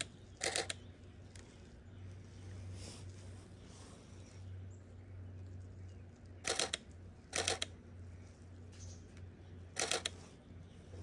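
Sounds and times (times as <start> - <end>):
camera shutter rapid clicks: 0.0 - 0.8, 6.4 - 7.8, 9.7 - 10.2.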